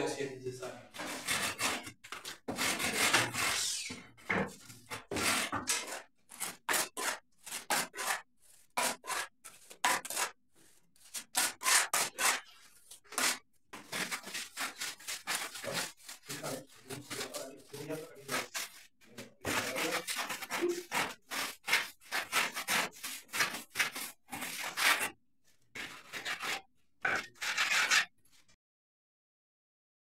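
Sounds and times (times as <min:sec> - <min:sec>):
wooden float scraping cement: 0:00.9 - 0:28.6.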